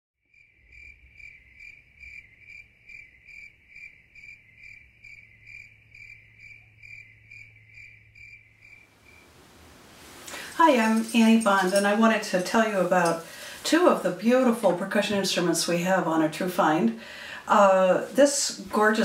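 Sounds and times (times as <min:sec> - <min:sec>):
cricket chirping: 0:00.3 - 0:09.4.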